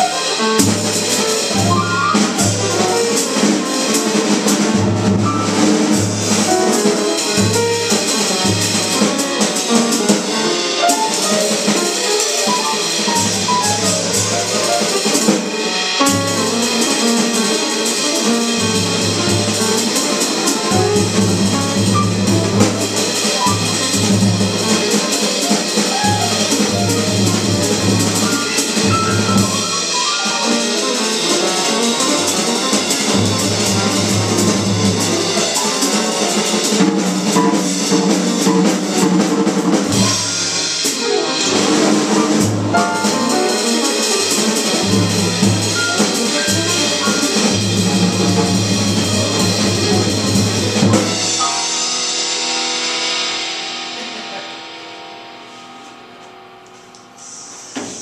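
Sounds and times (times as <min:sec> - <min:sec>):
drum kit: 0:00.0 - 0:58.0
piano: 0:00.0 - 0:58.0
cymbals shimmering: 0:51.1 - 0:57.7.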